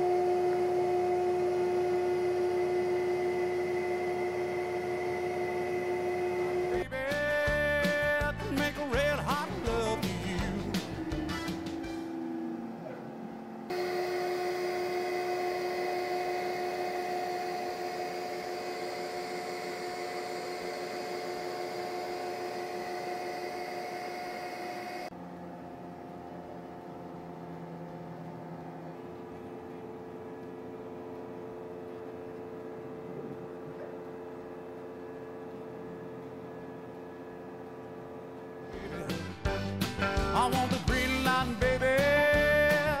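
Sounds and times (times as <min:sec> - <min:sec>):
cnc router whining: 0:00.0 - 0:06.9, 0:09.6 - 0:39.2.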